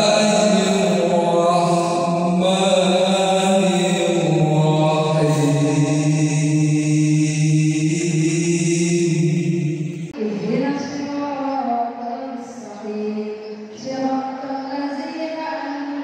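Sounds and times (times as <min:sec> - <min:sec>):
man chanting through loudspeakers: 0:00.0 - 0:10.2.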